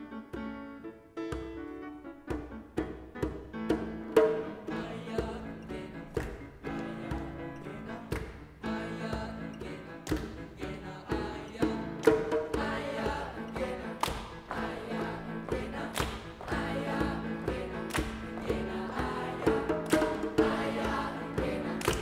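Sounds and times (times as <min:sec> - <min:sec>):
hand drum beats: 0:01.3 - 0:05.5, 0:08.1 - 0:22.0
choir singing in parts: 0:04.2 - 0:22.0.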